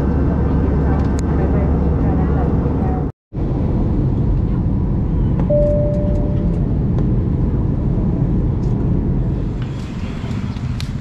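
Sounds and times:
jet airliner cabin rumble: 0.0s - 11.0s
short cabin tone: 5.4s - 6.6s.

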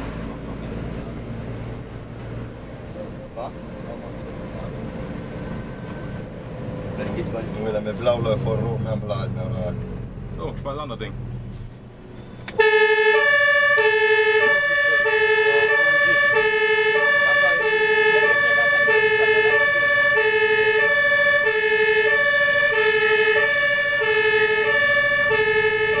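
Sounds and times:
two-tone fire engine siren: 12.5s - 26.0s.

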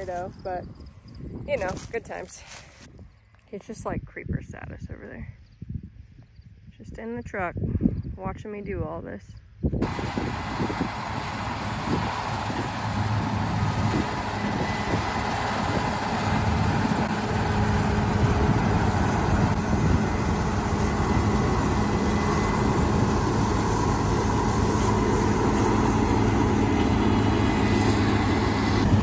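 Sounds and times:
combine harvester running: 9.8s - 29.0s.

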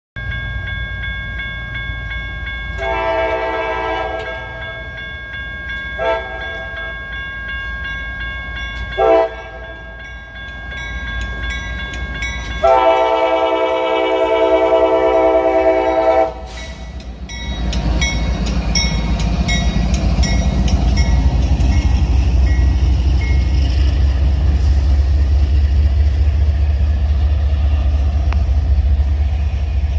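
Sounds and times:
crossing warning bell ringing: 0.2s - 29.9s
locomotive horn blasts: 2.8s - 4.7s, 6.0s - 6.7s, 9.0s - 9.7s, 12.6s - 16.6s.

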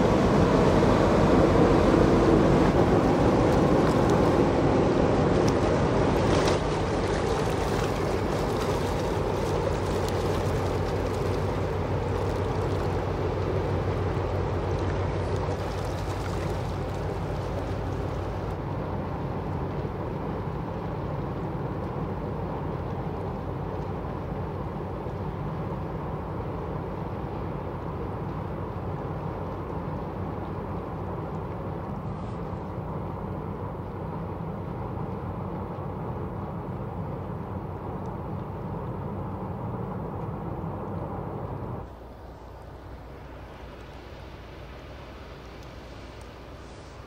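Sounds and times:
water churning: 0.0s - 18.7s
ship engine low hum: 0.0s - 47.0s.

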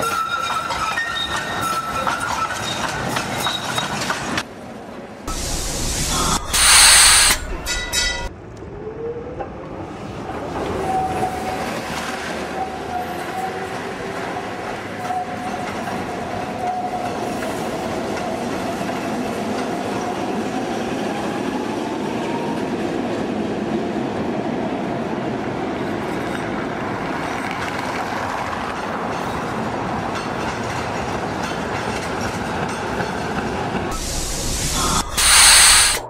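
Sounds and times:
wheel squeal: 0.0s - 4.2s
tram hiss and clatter: 0.0s - 8.3s, 22.6s - 36.0s
tram running on rails: 0.0s - 36.0s.

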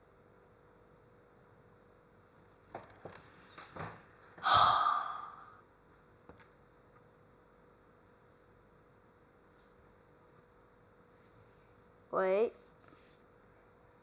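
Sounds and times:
person breathing: 4.4s - 5.6s.

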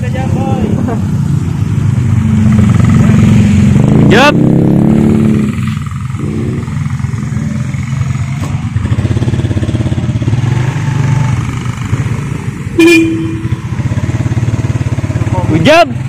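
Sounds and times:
motorcycle engine running: 0.0s - 16.0s
short loud beep: 12.8s - 13.5s.

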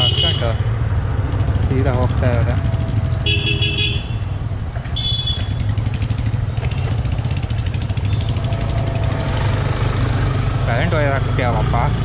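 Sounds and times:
motorcycle engine idling: 1.8s - 9.6s.

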